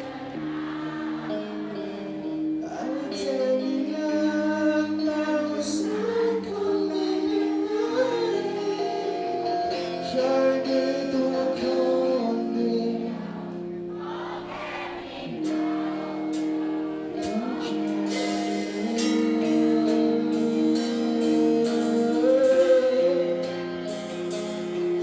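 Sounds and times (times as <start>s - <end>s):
person singing pop-rock ballad: 0.0s - 25.0s
drums and cymbals: 17.2s - 25.0s.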